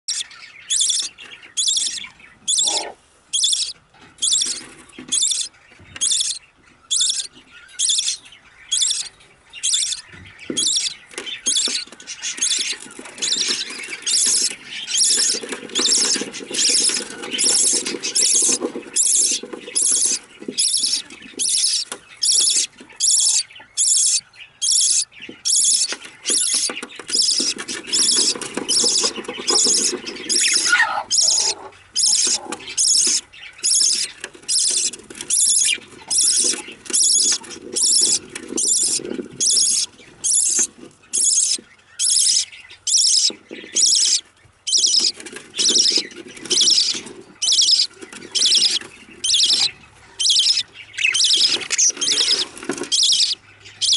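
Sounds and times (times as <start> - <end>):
nestlings begging calls: 0.1 - 53.9.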